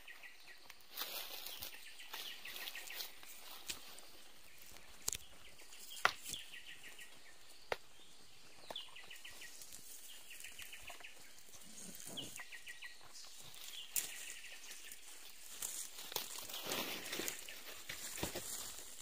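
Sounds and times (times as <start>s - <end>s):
banana leaves rustling: 0.7s - 6.5s, 13.3s - 19.0s.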